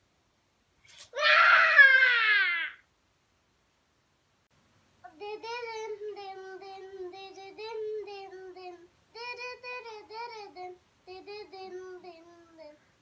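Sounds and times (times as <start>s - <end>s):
child singing: 5.0s - 12.9s.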